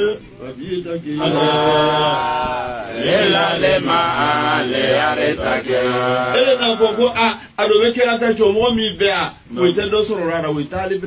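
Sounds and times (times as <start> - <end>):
man chanting into microphone: 5.6 - 7.5.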